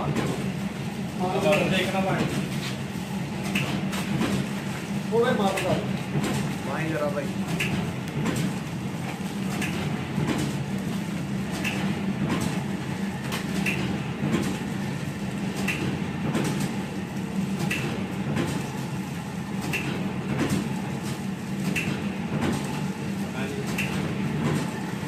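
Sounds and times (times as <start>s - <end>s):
packing machine motor hum: 0.0s - 25.0s
machine clattering clicks: 9.5s - 10.6s, 13.3s - 14.6s, 15.5s - 16.8s, 17.6s - 18.6s, 21.6s - 22.8s, 23.6s - 24.8s.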